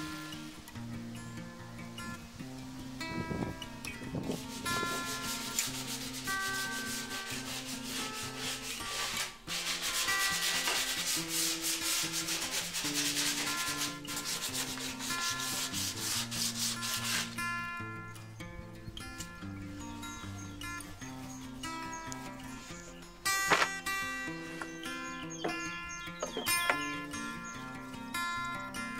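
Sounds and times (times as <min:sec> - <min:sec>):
soft background music: 0:00.0 - 0:28.9
rubbing strokes on wood panel: 0:04.2 - 0:17.5.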